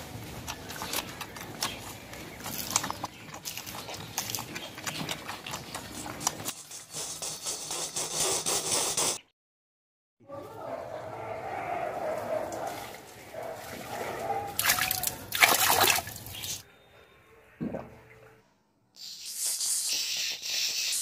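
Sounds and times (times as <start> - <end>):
puppies suckling: 0.4 - 7.9.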